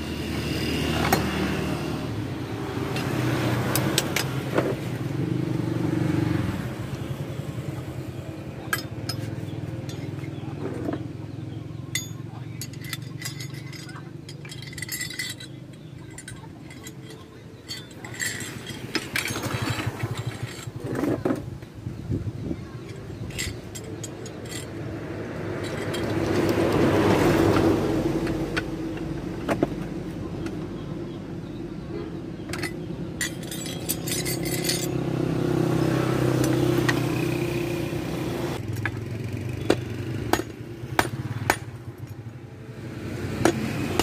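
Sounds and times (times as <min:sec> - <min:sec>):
vehicle engine passing: 0:00.0 - 0:08.5, 0:24.4 - 0:29.4, 0:33.4 - 0:42.0
light metallic clinks: 0:08.7 - 0:10.4, 0:11.9 - 0:20.8, 0:22.8 - 0:24.9, 0:25.5 - 0:26.8, 0:32.5 - 0:35.1.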